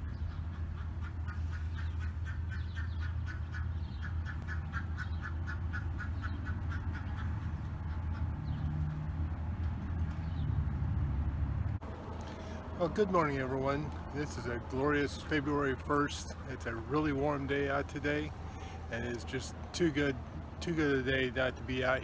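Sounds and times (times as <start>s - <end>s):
animal calling rapidly: 0.1s - 8.3s.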